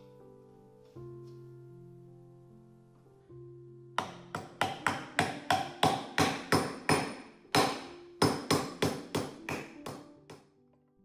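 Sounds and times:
hammer tapping wooden board: 4.0 - 10.5.

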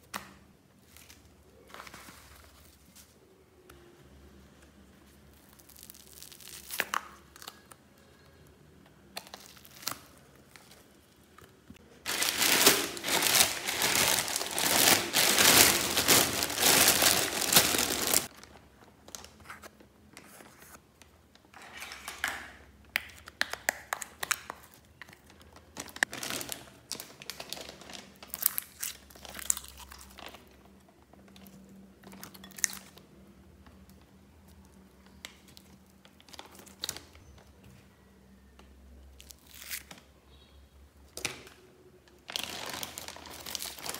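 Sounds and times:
sticky slime crackling: 9.1 - 18.4
plastic garbage bag crinkling: 12.0 - 19.2, 25.7 - 28.6, 42.2 - 43.9.

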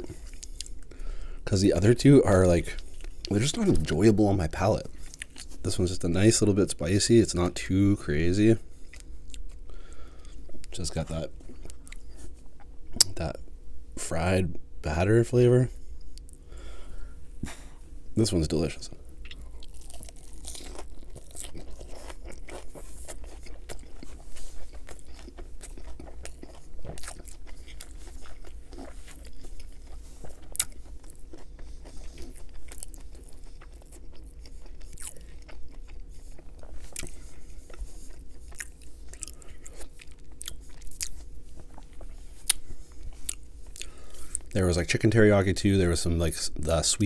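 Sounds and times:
crunchy chewing: 18.6 - 44.6.

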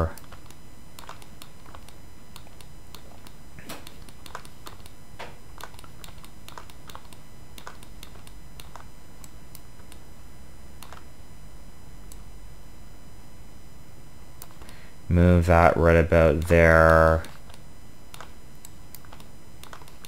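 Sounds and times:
computer mouse and keyboard clicking: 0.0 - 10.1, 10.8 - 11.1, 14.4 - 14.8, 16.4 - 20.0
steady low hum: 0.0 - 20.0.

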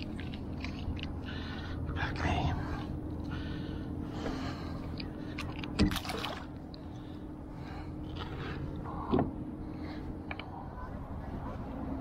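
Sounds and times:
water sloshing around boat: 0.0 - 1.9, 2.6 - 12.0
steady low hum: 0.0 - 12.0
water splashes: 5.8 - 6.5.

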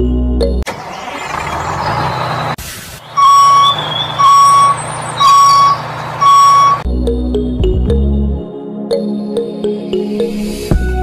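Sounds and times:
low engine hum: 0.7 - 7.9
truck reversing alarm beeps: 1.5 - 6.9.

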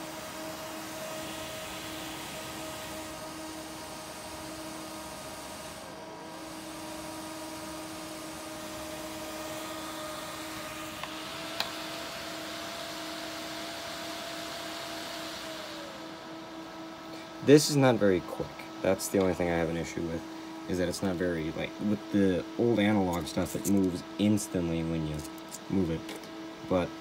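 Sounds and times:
computer fans whirring: 0.0 - 27.0.

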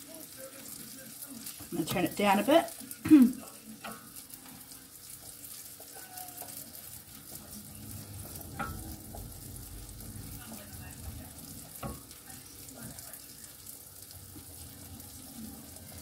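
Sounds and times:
mushrooms sizzling in butter: 0.0 - 16.0
wooden spoon stirring in saucepan: 0.0 - 16.0.

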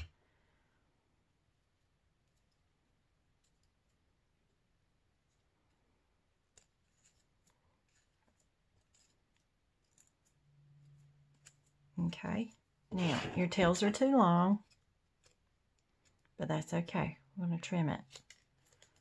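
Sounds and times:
paper ticks and crinkles: 5.2 - 12.6, 13.8 - 16.4, 17.7 - 19.0.

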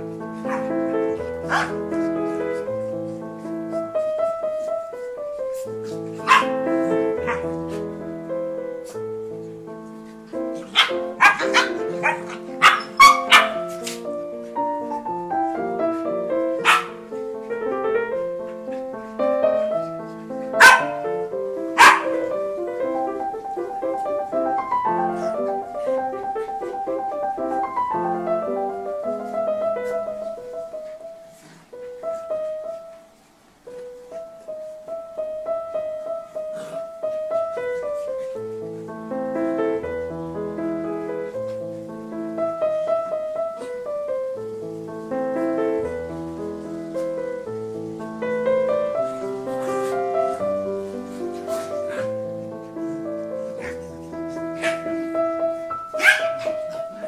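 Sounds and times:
piano melody of single notes: 0.0 - 57.0
dogs barking and yipping: 0.3 - 2.9, 5.8 - 7.9, 10.3 - 26.8, 53.4 - 57.0
background music: 5.5 - 30.2.

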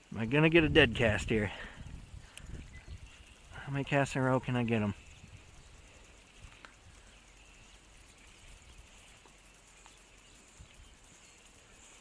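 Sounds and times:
soft ticks: 2.2 - 2.6, 6.0 - 12.0.

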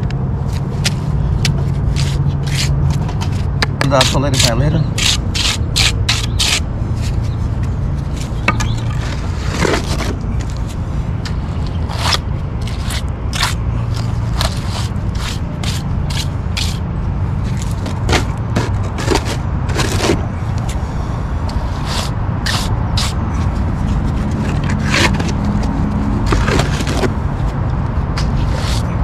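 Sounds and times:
trowel scraping wet concrete: 1.5 - 7.2, 11.9 - 16.8, 17.4 - 20.2, 21.7 - 25.6, 26.2 - 27.2, 28.3 - 29.0.

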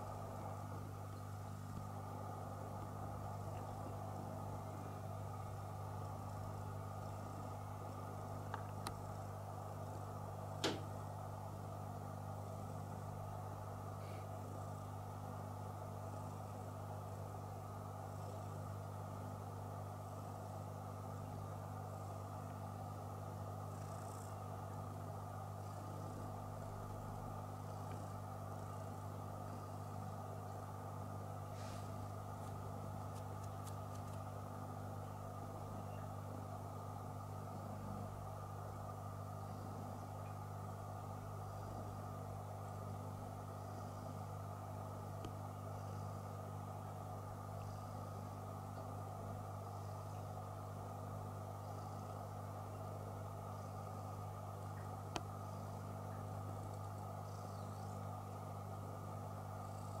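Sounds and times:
low electrical hum: 0.0 - 60.0
small click: 10.6 - 10.9, 33.1 - 34.3.

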